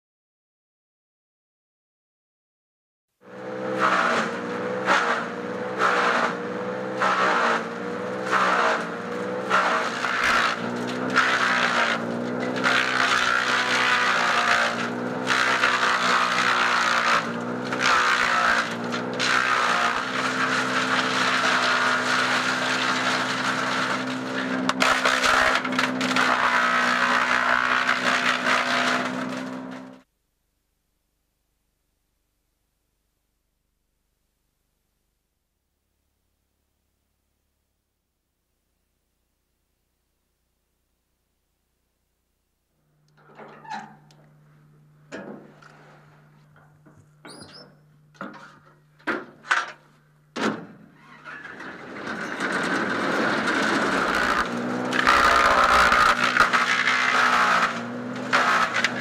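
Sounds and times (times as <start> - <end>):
shredder crunching branches: 3.2 - 30.1, 43.1 - 59.0
shredder engine running: 3.2 - 30.1, 51.0 - 59.0.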